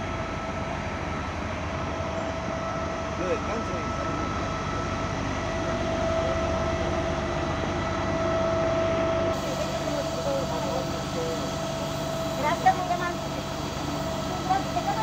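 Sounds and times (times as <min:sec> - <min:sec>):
fire truck engine rumbling: 0:00.0 - 0:15.0
faint voices: 0:09.4 - 0:15.0.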